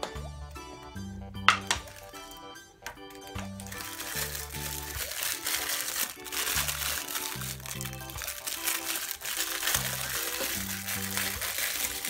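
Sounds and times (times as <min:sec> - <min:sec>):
music of short repeated notes: 0:00.0 - 0:12.0
plastic bag crinkling: 0:01.6 - 0:02.4, 0:03.2 - 0:12.0.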